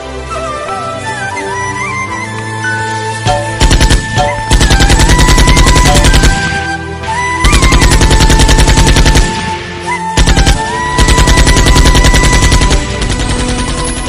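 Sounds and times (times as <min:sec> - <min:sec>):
rapid machine-gun fire: 0:03.3 - 0:06.6, 0:07.4 - 0:09.6, 0:10.2 - 0:14.0.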